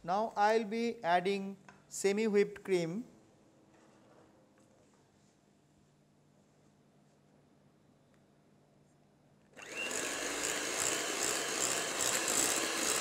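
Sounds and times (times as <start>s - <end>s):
electric hand mixer running: 9.6s - 13.0s.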